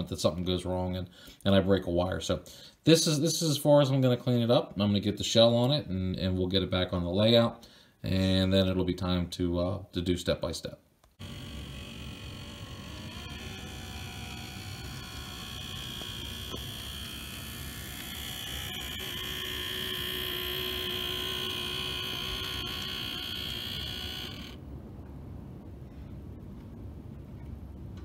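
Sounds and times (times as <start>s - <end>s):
model locomotive motor whine: 11.2s - 24.6s.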